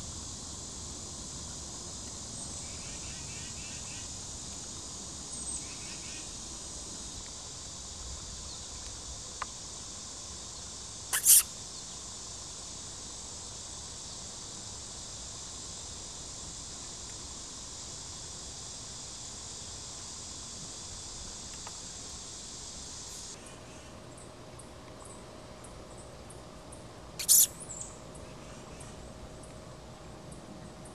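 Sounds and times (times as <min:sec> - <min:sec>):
crickets chirping: 0:00.0 - 0:30.9.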